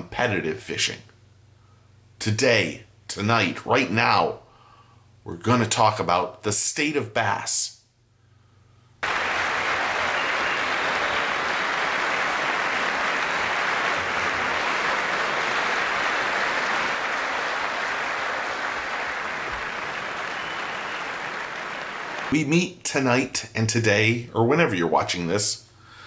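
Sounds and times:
crowd applauding: 9.0 - 22.4.

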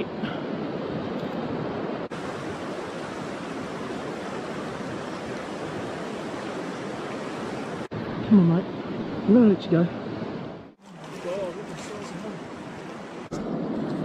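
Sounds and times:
river water rushing: 0.9 - 8.3, 9.9 - 13.4.

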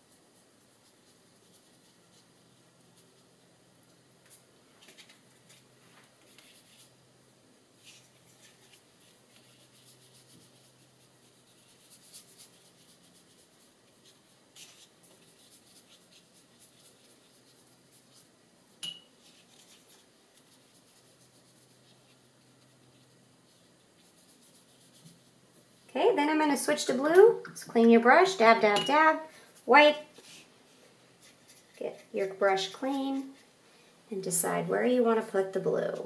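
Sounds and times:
brush rubbing on paper: 0.0 - 4.5, 5.3 - 7.0, 7.8 - 18.4, 19.2 - 26.5, 29.6 - 33.6.

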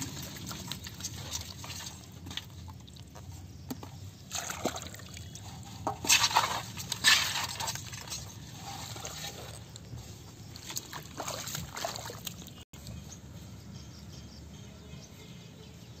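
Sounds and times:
muddy water sloshing and splashing: 0.0 - 12.7.

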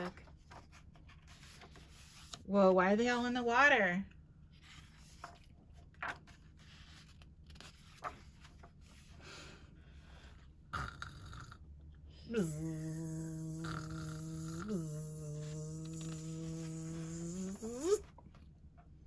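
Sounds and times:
pages turning: 0.2 - 2.4, 4.6 - 9.1
person humming buzz: 12.3 - 18.0.

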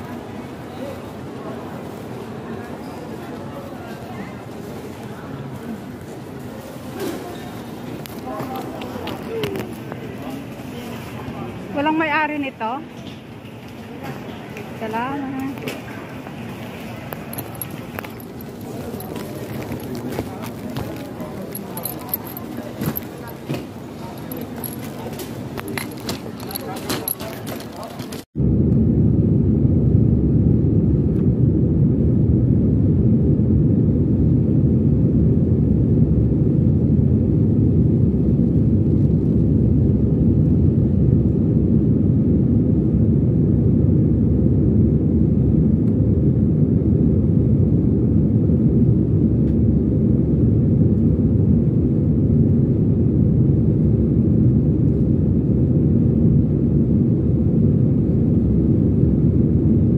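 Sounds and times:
airliner cabin engine rumble: 0.0 - 59.9.

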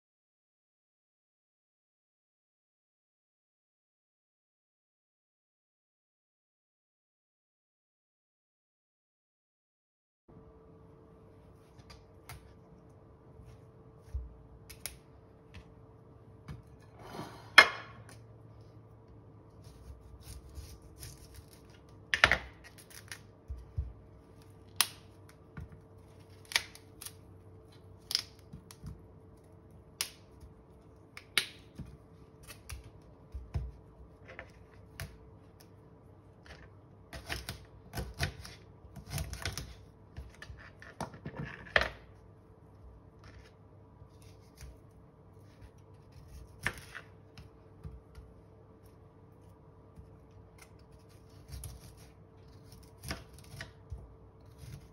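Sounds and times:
knife cutting broccoli on board: 19.6 - 21.8.

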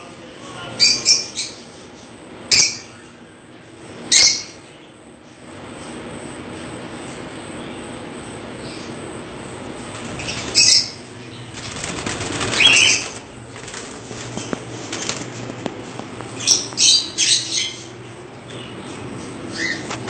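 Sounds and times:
birds flapping wings in cage: 9.9 - 10.8, 11.4 - 15.8.

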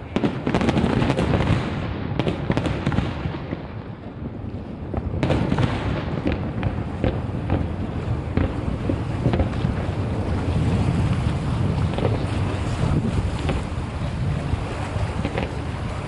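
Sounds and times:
fireworks bangs: 0.0 - 16.0
crackling pops: 4.9 - 13.8, 15.2 - 15.7.

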